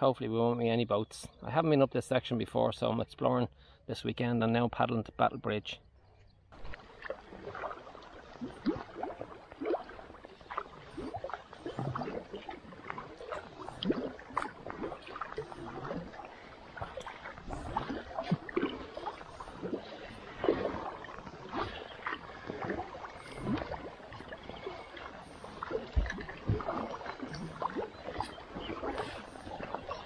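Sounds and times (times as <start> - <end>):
kayak paddle strokes in water: 6.6 - 30.0
water splashes and drips: 6.6 - 30.0.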